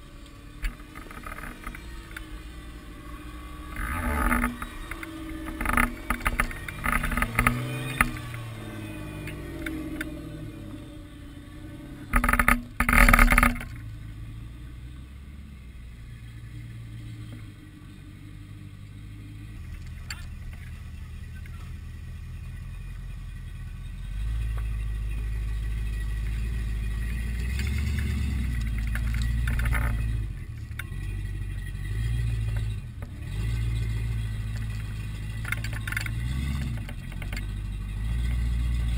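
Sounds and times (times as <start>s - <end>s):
off-road vehicle engines rumbling: 0.0s - 38.9s
knocks and clatter: 3.7s - 8.4s, 12.1s - 13.9s, 27.3s - 31.3s.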